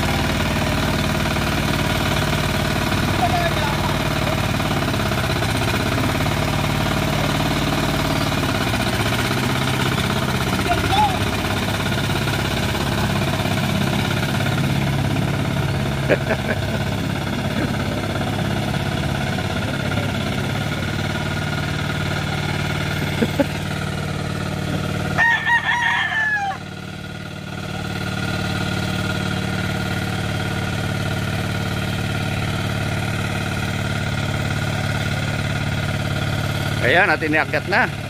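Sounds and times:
hand tiller engine running: 0.0 - 25.3, 26.3 - 38.0
rooster crowing: 25.1 - 26.7.

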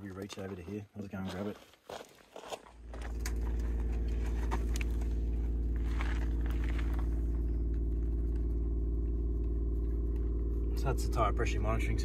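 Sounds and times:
air compressor humming: 2.8 - 12.0.

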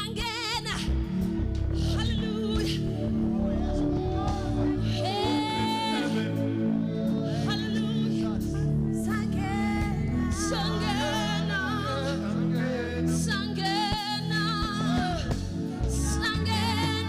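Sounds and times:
held instrumental chords: 0.9 - 13.8
gospel choir singing: 1.1 - 17.0.

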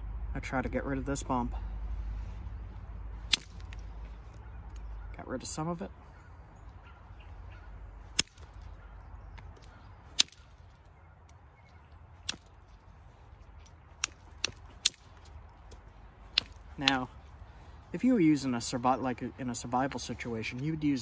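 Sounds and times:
billet striking flint clicks: 3.3 - 4.9, 8.1 - 11.4, 12.2 - 12.8, 13.4 - 17.1.

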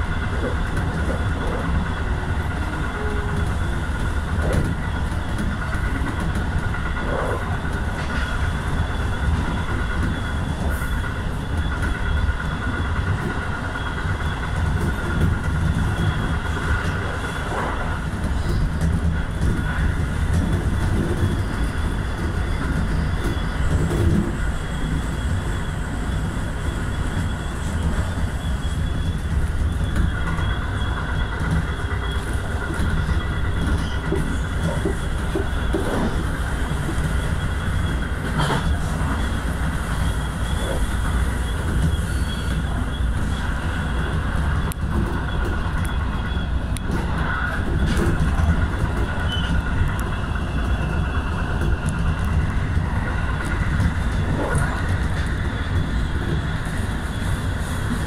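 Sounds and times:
train wheels rumbling on rail: 0.0 - 58.0.

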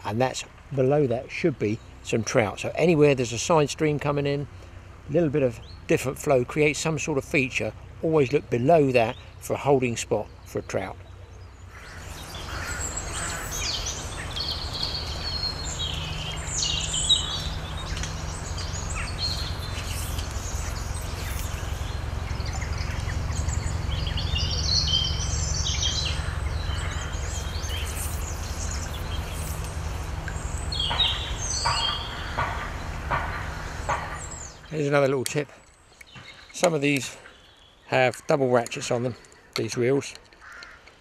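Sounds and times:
small birds chirping: 0.0 - 41.0
steady low rumble: 10.3 - 34.8.

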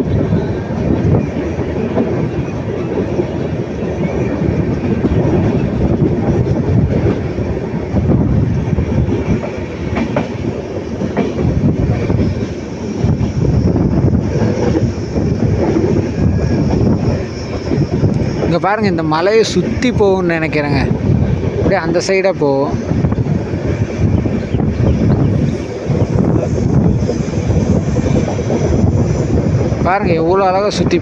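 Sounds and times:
train wheels rumbling on track: 0.0 - 31.0
wheels clacking over rail joints: 0.1 - 13.0.

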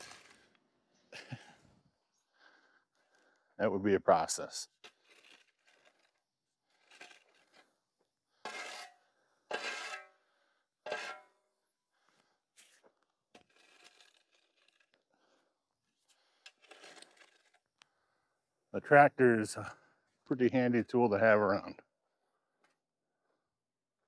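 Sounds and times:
shovel scraping gravel: 0.0 - 0.6, 4.2 - 7.8, 8.4 - 10.2, 10.8 - 11.4, 12.6 - 15.0, 16.3 - 17.7.

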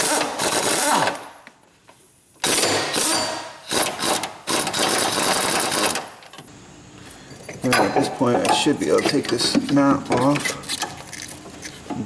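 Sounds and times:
pneumatic impact wrench hammering: 0.0 - 1.3, 2.4 - 6.4.

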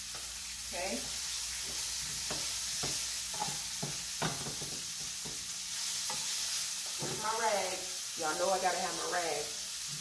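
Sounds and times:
vegetables sizzling in oil: 0.0 - 10.0
wooden spoon scraping a pan: 1.0 - 7.6.

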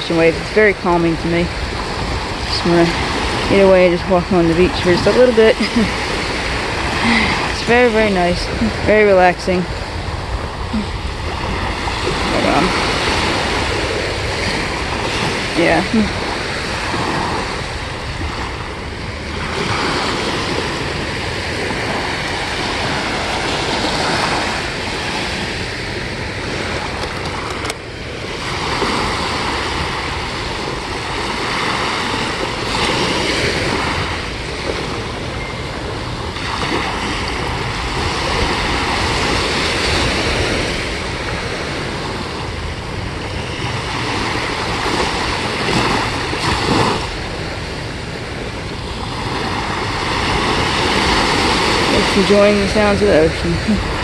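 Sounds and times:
waves lapping on sandy beach: 0.0 - 54.0
wind noise on microphone: 0.0 - 54.0.

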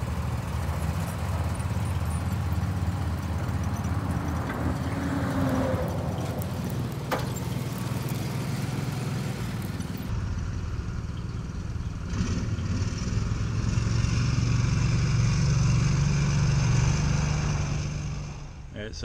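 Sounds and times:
utility vehicle engine running: 0.0 - 18.8
metal clank: 6.2 - 8.0.

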